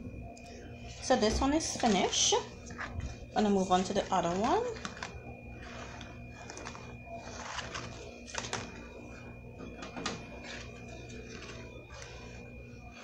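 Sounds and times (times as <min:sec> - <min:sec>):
leaf crackling over flame: 0:01.9 - 0:08.9.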